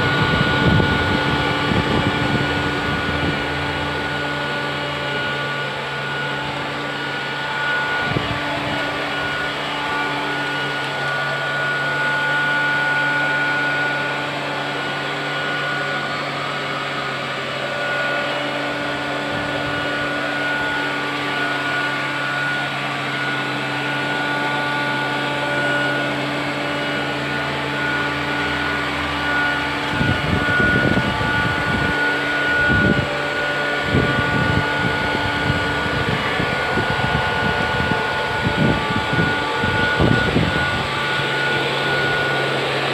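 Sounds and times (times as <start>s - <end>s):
low rumbling bursts: 0.0s - 12.7s, 18.7s - 21.2s, 26.3s - 42.0s
robot vacuum cleaner whining: 0.0s - 42.9s.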